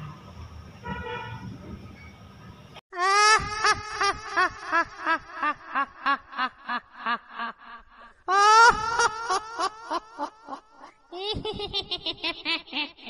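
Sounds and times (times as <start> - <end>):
high-pitched cackling laugh: 3.0 - 13.0.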